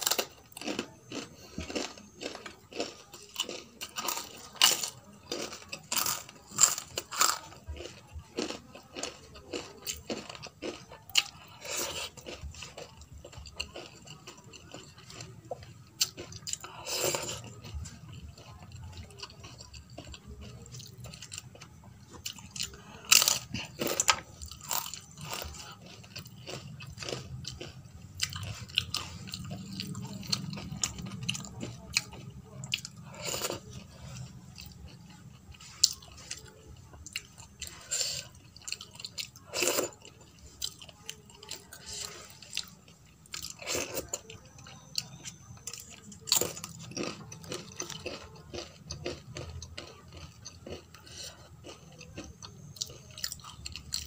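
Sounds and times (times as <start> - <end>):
crunching bites: 0.0 - 8.6
chewing with wet mouth smacks: 0.0 - 54.0.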